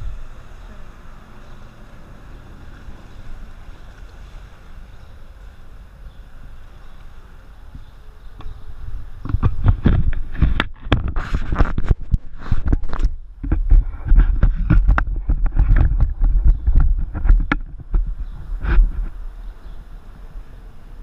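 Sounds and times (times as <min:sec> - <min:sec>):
camera handling knocks and rubbing: 0:09.2 - 0:19.2.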